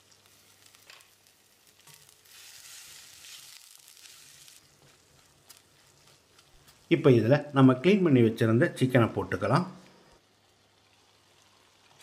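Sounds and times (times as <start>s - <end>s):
paste sizzling in oil: 0.0s - 7.3s
wooden spatula stirring: 4.4s - 6.9s.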